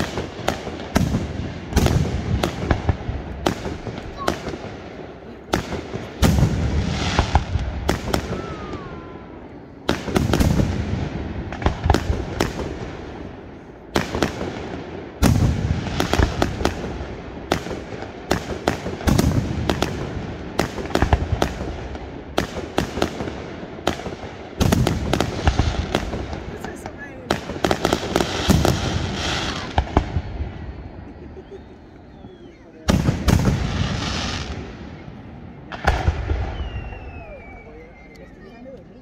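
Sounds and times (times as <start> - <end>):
firework shells booming: 0.0 - 37.7
small firework pops: 5.5 - 8.9, 17.5 - 30.5, 35.7 - 39.0.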